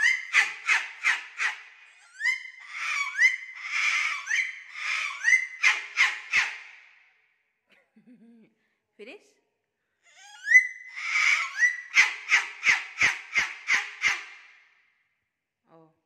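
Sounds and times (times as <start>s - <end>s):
cockatoo screeching: 0.0s - 6.8s, 10.1s - 14.6s.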